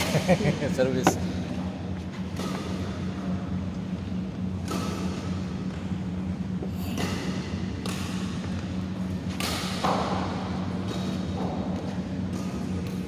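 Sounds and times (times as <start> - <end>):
steady low hum: 0.0 - 13.0
rackets hitting shuttlecock: 2.3 - 3.3, 4.6 - 5.8, 6.9 - 13.0.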